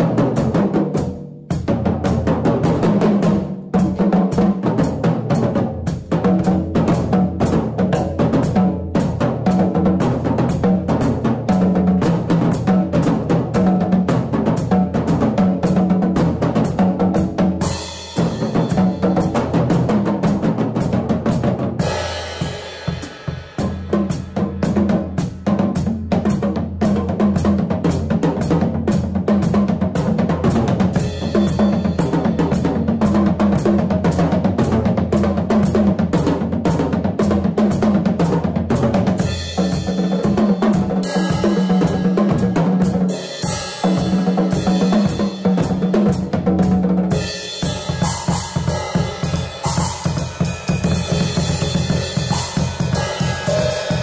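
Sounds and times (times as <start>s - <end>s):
bass drum pattern: 0.0s - 54.0s
cymbal crashes: 52.0s - 54.0s.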